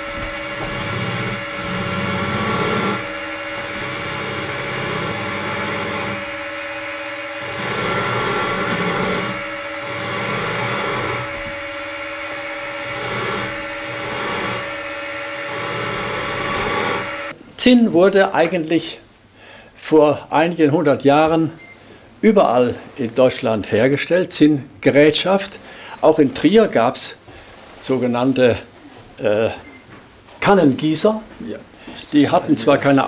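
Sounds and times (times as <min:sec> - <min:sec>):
metal grinding on polishing wheel: 0:00.0 - 0:17.4
polishing machine humming: 0:00.0 - 0:17.4.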